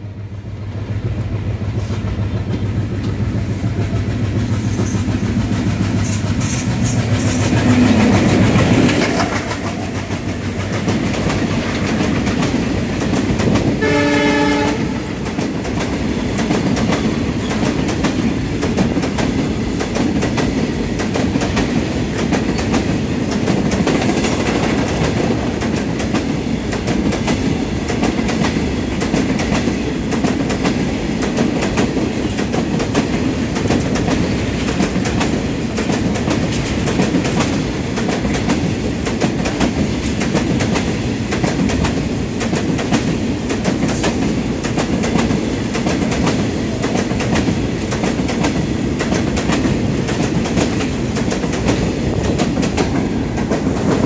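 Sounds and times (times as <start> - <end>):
locomotive engine hum: 0.0 - 13.2
wheels clacking over rail joints: 1.6 - 14.6
train horn: 13.8 - 15.2.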